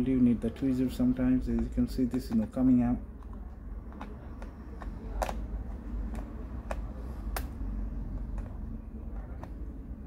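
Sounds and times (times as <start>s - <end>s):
low steady hum: 0.0s - 10.0s
tools clicking and scraping on plastic: 1.4s - 7.5s, 8.1s - 9.7s.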